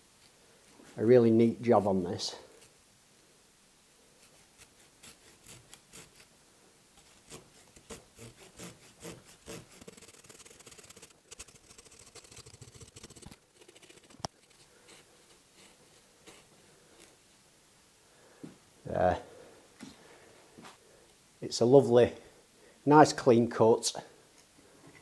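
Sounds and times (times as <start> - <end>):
hand saw cutting a branch: 4.3 - 6.3, 7.0 - 14.6.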